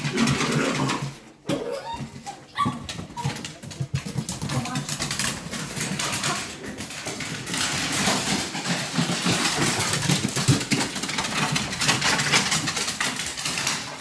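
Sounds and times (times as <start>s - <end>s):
dogs growling: 0.0s - 3.5s
paws clicking on wooden floor: 0.0s - 14.0s.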